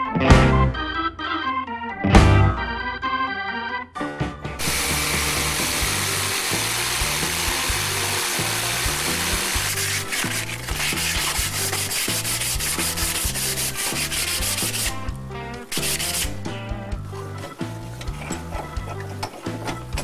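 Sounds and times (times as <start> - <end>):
electric jigsaw cutting plywood: 4.6 - 10.7
hand sanding wood: 4.6 - 16.5.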